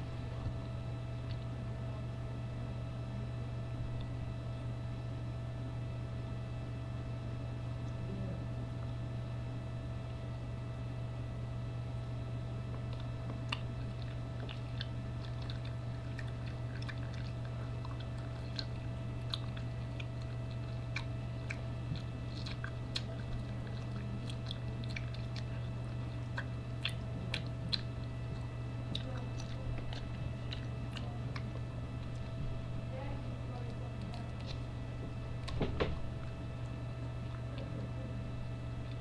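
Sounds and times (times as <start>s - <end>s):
low electrical hum: 0.0s - 39.0s
person chewing food: 12.6s - 32.9s, 33.7s - 39.0s.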